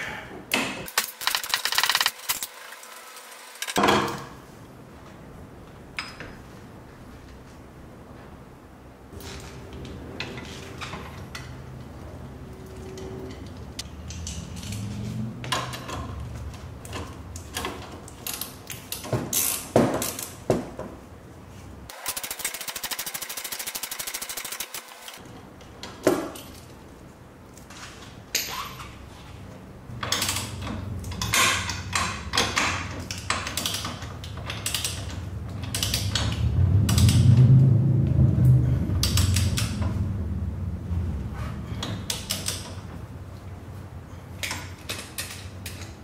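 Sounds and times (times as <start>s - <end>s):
ratchet clicking: 0.9s - 3.8s, 21.9s - 25.2s.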